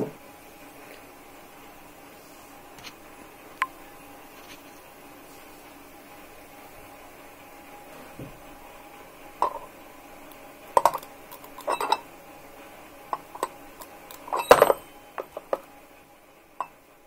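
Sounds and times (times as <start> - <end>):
spanner tapping metal rods: 9.4 - 9.7, 10.3 - 12.0, 13.2 - 15.6.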